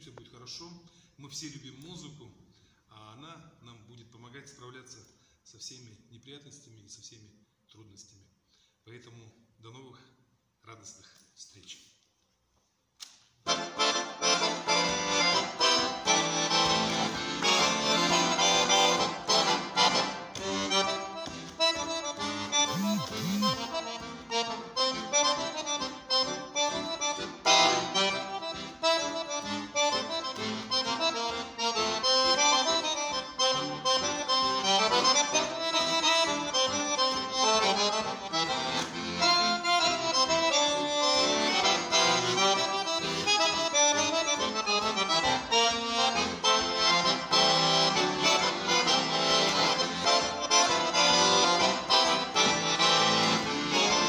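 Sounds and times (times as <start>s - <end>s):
piano accordion playing: 13.4s - 54.0s.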